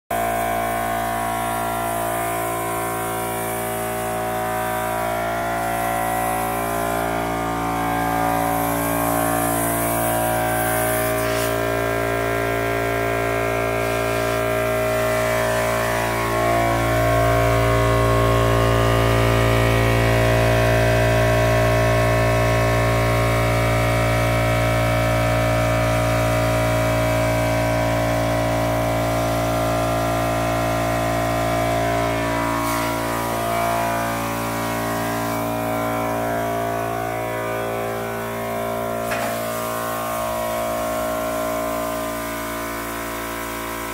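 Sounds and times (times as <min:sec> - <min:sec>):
compressor mechanical hum: 0:00.1 - 0:43.9
spray hissing from wand: 0:00.6 - 0:12.4, 0:13.1 - 0:17.2, 0:32.0 - 0:35.7, 0:38.0 - 0:40.9.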